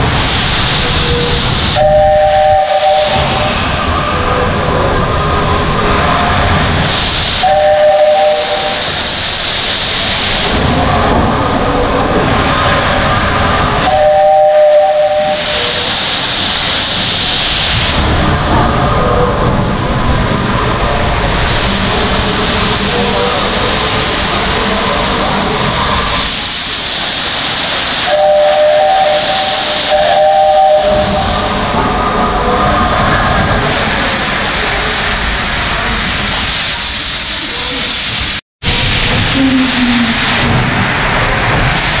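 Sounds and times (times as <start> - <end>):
steam locomotive hissing steam: 0.0 - 42.0
two-note steam whistle: 1.2 - 3.6, 7.4 - 8.9, 13.8 - 15.9, 28.0 - 31.5.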